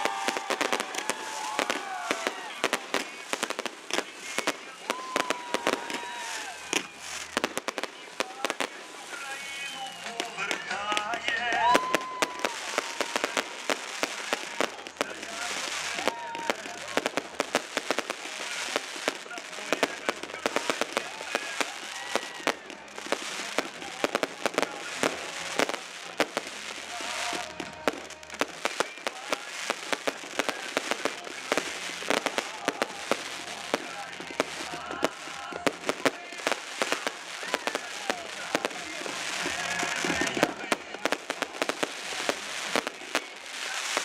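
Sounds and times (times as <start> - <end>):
fireworks bangs and crackles: 0.0 - 44.0.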